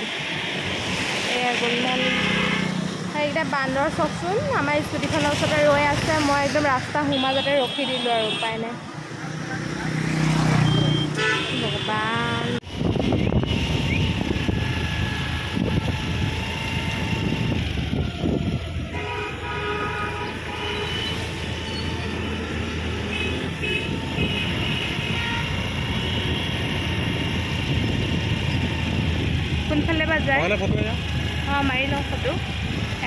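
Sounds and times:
drawn-out horn tones: 1.6 - 2.9, 18.7 - 27.6
scooter engine rumble: 9.4 - 33.0
wind on microphone: 12.6 - 19.1, 23.8 - 30.0.

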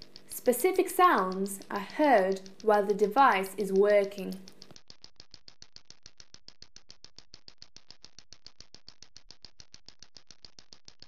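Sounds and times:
fast train of faint clicks: 0.0 - 4.4.

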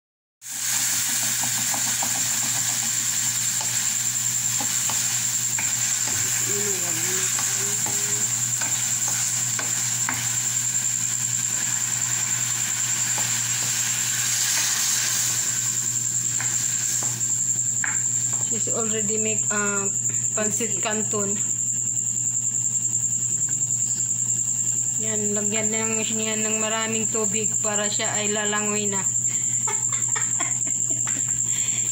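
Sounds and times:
water poured into hot pan: 0.4 - 5.5, 9.3 - 17.4
chicken sizzling in a pan: 0.4 - 18.8
spatula scraping and knocking pan: 0.6 - 18.4.

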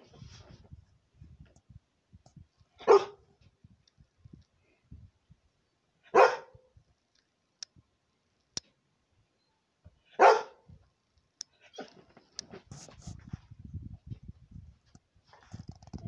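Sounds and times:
dog barking: 2.8 - 3.2, 6.1 - 6.6, 10.1 - 10.6.

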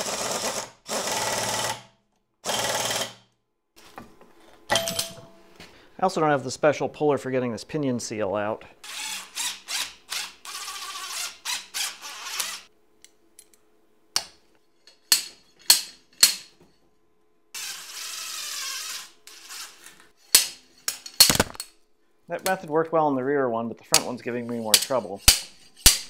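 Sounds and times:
cordless drill driving screw: 8.9 - 12.7, 17.6 - 19.9.

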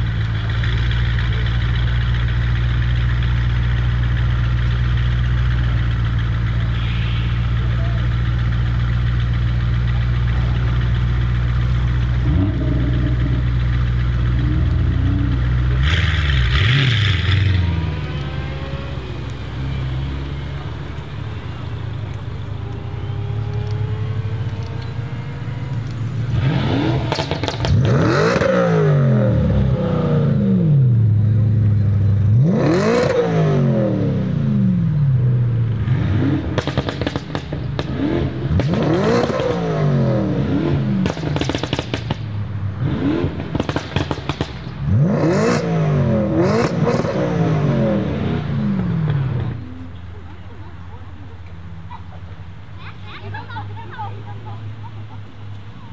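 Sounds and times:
car engine pulling away: 0.0 - 55.9
exhaust crackles: 0.0 - 55.9
car engine revving sharply: 11.8 - 20.6, 21.9 - 31.2, 32.2 - 50.2.

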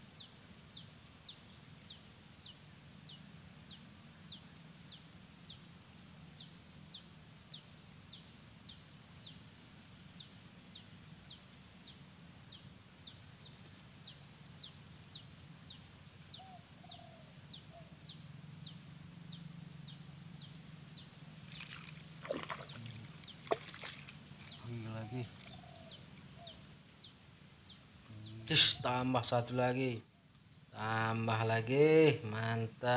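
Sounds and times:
high insect drone: 0.0 - 32.9
bird chirping: 0.1 - 9.4, 10.1 - 32.9
fish splashing at surface: 21.5 - 24.6.

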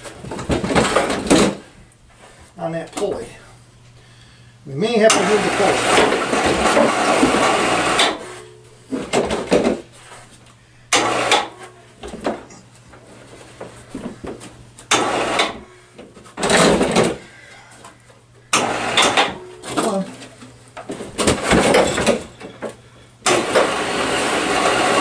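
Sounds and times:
platform clattering and scraping on stairs: 0.0 - 1.7.

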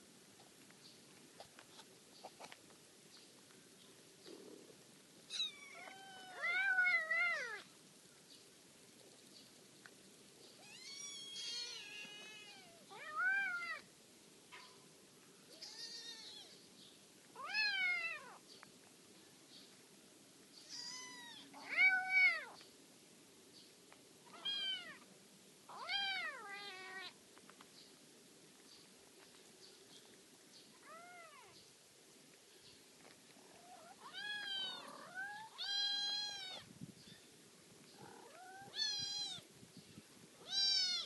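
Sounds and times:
kittens meowing: 5.3 - 7.6, 10.6 - 13.8, 15.5 - 16.5, 20.6 - 22.6, 24.3 - 25.0, 33.6 - 36.7, 38.0 - 39.4, 40.4 - 41.0.

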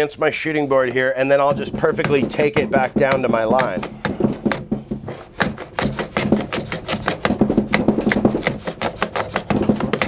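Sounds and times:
hand plane scraping swish: 3.9 - 10.0.

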